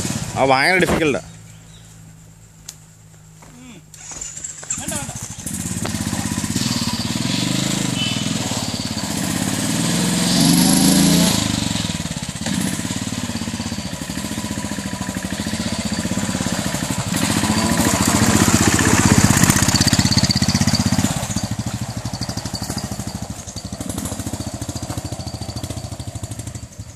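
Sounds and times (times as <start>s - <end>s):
motorcycle engine revving on dirt: 0.0s - 2.2s, 3.8s - 26.9s.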